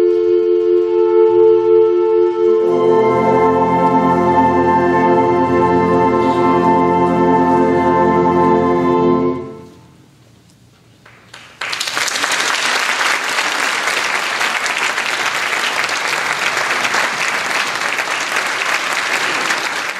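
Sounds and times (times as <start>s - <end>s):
concert band final chord: 0.0s - 9.8s
audience applause: 11.0s - 19.9s.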